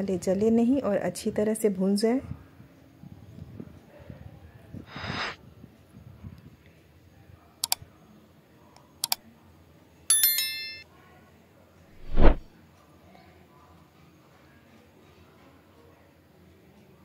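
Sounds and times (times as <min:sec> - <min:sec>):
bright bell chime: 0:10.1 - 0:10.8
whoosh: 0:12.0 - 0:12.4.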